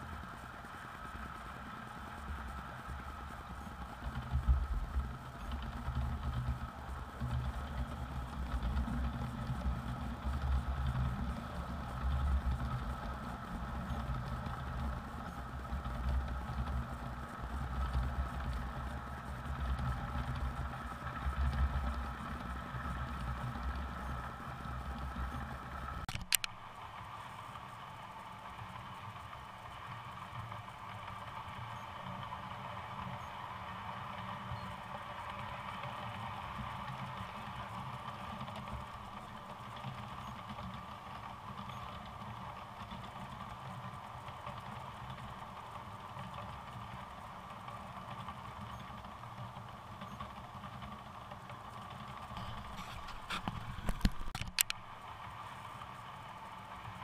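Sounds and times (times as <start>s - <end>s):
quiet steady hum: 0.0s - 57.0s
sharp click: 26.0s - 26.6s, 53.0s - 54.8s.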